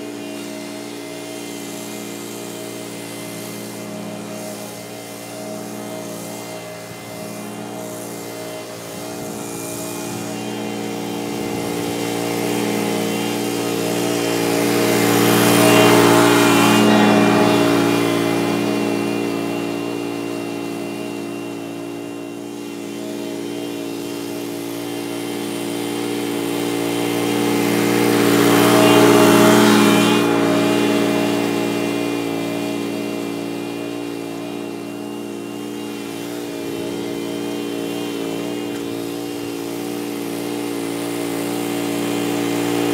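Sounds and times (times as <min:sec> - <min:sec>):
lawn mower engine running: 0:00.0 - 0:42.9.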